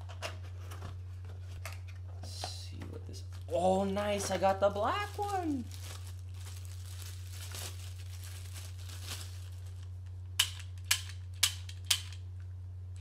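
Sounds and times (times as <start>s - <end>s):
plastic wrapping crinkling: 3.2s - 10.8s
pistol mechanism clicks: 10.4s - 12.2s.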